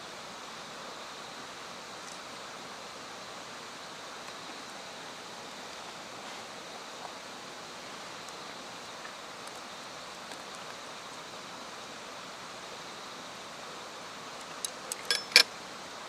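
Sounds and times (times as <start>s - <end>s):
outdoor background hiss: 0.0s - 16.0s
chopsticks clicking on steel dish: 14.9s - 15.5s.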